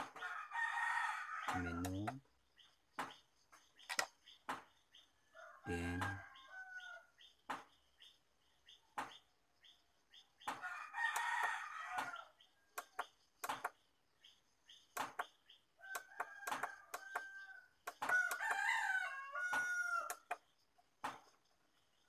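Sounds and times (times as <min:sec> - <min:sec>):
roosters crowing: 0:00.0 - 0:02.2, 0:05.3 - 0:07.1, 0:10.5 - 0:13.0, 0:15.8 - 0:20.4
sharp clicks: 0:03.8 - 0:04.6, 0:12.8 - 0:13.8, 0:14.9 - 0:18.6, 0:20.0 - 0:21.2.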